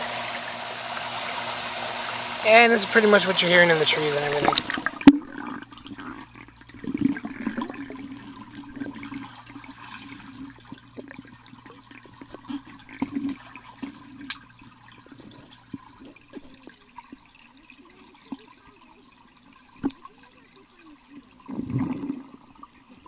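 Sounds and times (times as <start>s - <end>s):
steady low hum: 0.0s - 16.7s
water sloshing and splashing: 2.4s - 23.0s.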